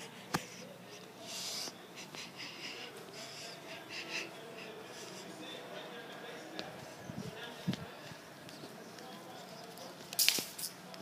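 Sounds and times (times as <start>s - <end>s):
person breathing: 0.0s - 5.7s.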